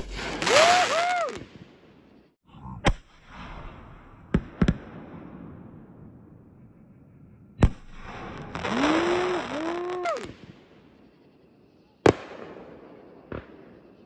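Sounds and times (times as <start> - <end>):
fireworks bangs: 0.0 - 1.9, 7.6 - 10.9, 12.0 - 14.0.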